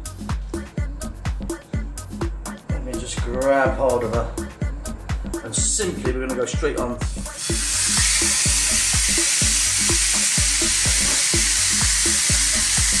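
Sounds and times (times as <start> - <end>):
background music beat: 0.0 - 13.0
fish sizzling on a griddle: 7.3 - 13.0.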